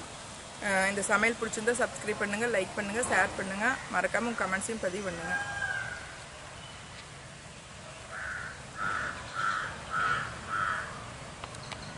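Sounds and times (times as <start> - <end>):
crow cawing: 8.1 - 11.0.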